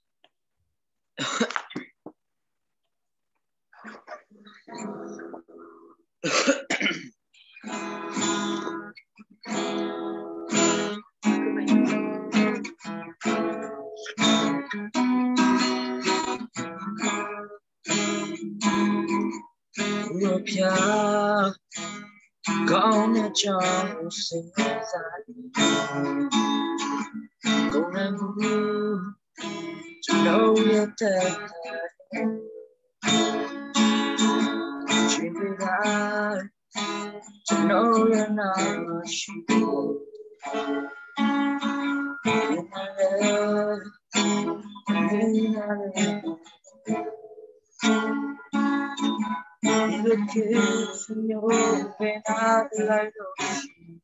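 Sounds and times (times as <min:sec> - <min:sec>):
strummed acoustic guitar: 0:03.7 - 0:54.0
man singing: 0:19.9 - 0:21.9, 0:22.5 - 0:26.5, 0:27.6 - 0:29.2, 0:30.0 - 0:32.6, 0:34.4 - 0:36.5, 0:37.4 - 0:40.2, 0:42.2 - 0:46.3, 0:48.6 - 0:53.8.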